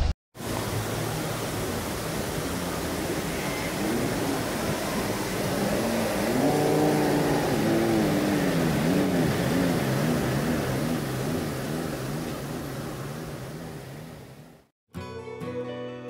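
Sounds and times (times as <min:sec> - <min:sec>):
car engine revving: 0:02.9 - 0:14.7.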